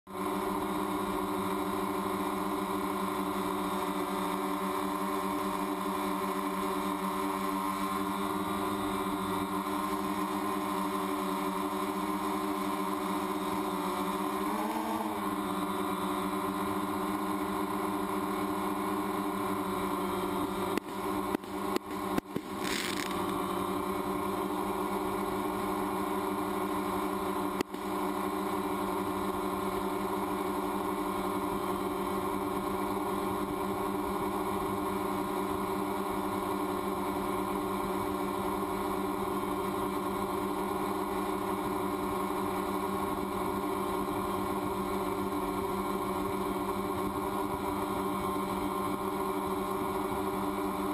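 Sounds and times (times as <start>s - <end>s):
drone propellers whining: 4.4s - 28.0s
sharp cracks: 20.8s - 23.4s.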